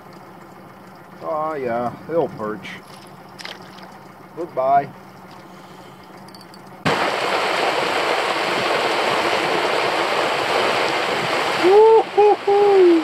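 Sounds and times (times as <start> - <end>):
heavy rain on lake surface: 6.8 - 13.0.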